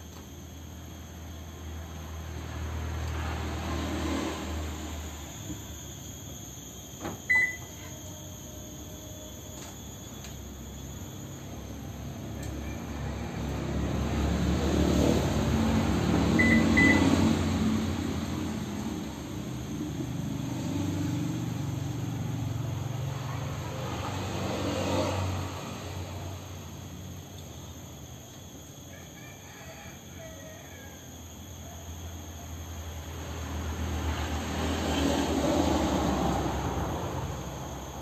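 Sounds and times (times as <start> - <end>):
motor vehicle passing: 2.2 - 5.3, 12.8 - 27.0, 33.0 - 38.0
short high beeps: 7.3 - 7.8, 16.4 - 17.1.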